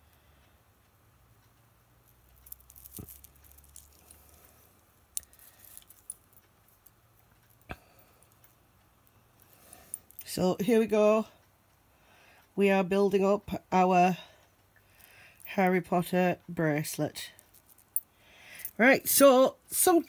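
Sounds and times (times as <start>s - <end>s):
metal bracelet ticking and rustling: 1.4s - 11.3s, 14.6s - 19.9s.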